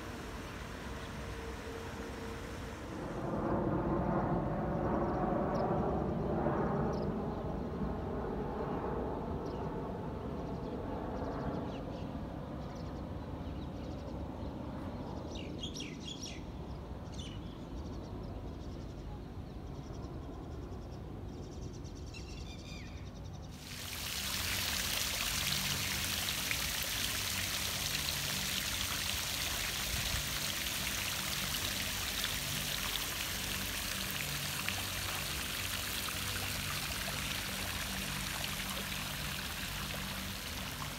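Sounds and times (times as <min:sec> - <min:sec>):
airplane drone: 0:00.0 - 0:11.7, 0:23.5 - 0:40.9
fountain jet splashing into pool: 0:23.6 - 0:40.9.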